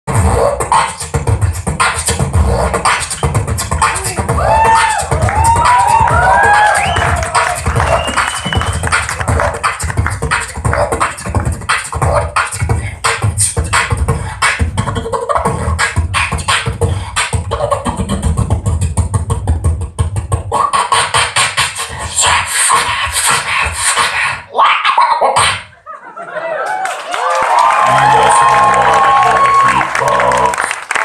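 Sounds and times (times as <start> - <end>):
beatboxing through a microphone: 0.1 - 25.8, 27.9 - 30.8.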